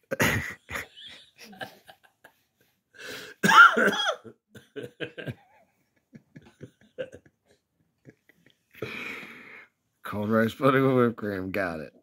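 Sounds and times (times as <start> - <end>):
man laughing: 0.0 - 2.5, 4.5 - 8.8.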